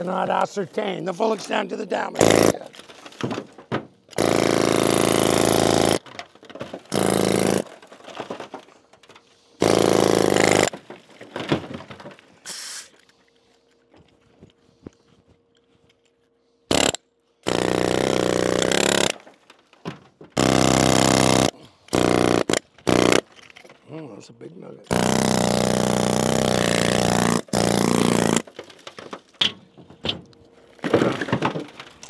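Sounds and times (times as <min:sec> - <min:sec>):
pneumatic air hammer chipping rock: 0:02.2 - 0:03.5, 0:04.1 - 0:08.4, 0:09.6 - 0:10.8, 0:12.4 - 0:13.0, 0:16.7 - 0:19.3, 0:20.4 - 0:23.3, 0:24.9 - 0:29.6.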